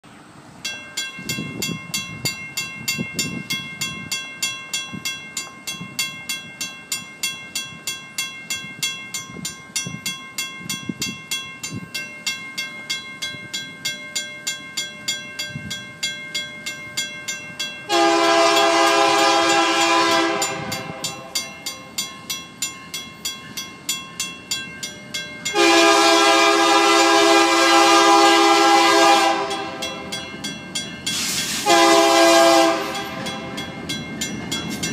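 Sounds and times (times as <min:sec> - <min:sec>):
crossing bell clanging: 0:00.1 - 0:34.9
locomotive horn blasts: 0:17.9 - 0:21.4, 0:25.5 - 0:30.1, 0:31.5 - 0:33.6.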